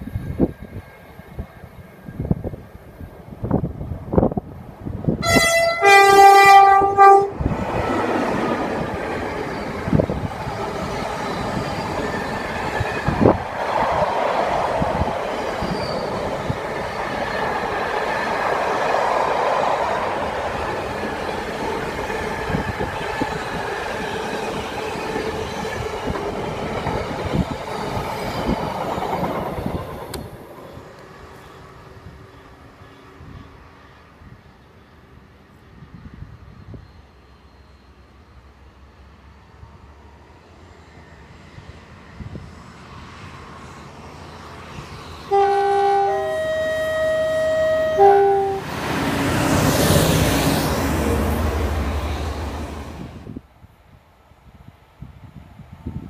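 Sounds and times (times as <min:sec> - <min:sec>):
locomotive two-tone horn: 0:05.2 - 0:07.4, 0:45.3 - 0:48.7.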